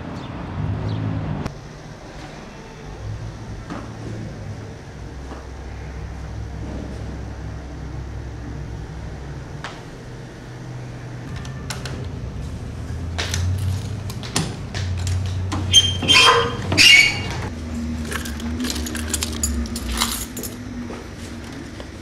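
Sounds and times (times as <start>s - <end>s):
steady low hum: 1.4s - 15.6s
keys jangling against metal door: 18.0s - 20.7s.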